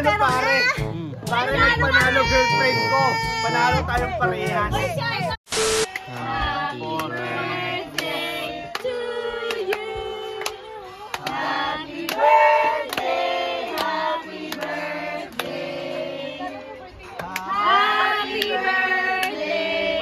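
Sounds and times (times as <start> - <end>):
group singing birthday song: 5.8 - 20.0.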